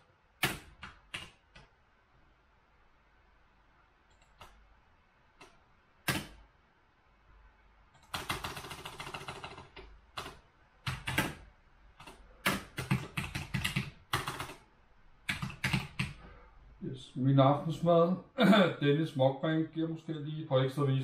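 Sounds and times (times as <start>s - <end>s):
typing on keyboard: 0.4s - 1.7s, 8.0s - 11.4s, 12.0s - 14.6s, 15.3s - 16.2s.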